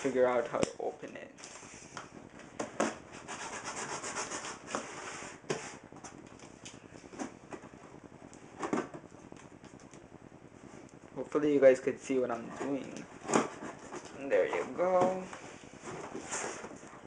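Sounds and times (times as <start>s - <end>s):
fingers scratching packing tape: 2.8s - 4.9s.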